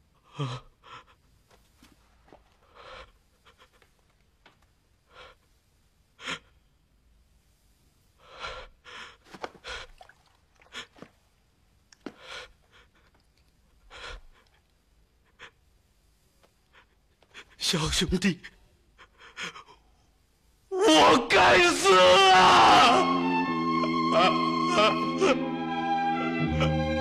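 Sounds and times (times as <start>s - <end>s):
person sobbing: 19.0s - 19.8s, 20.7s - 25.8s, 26.4s - 27.0s.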